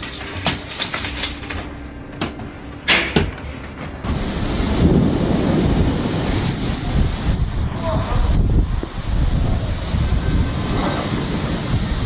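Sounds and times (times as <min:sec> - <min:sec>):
storm wind: 0:01.9 - 0:12.0
driving rain: 0:04.0 - 0:12.0.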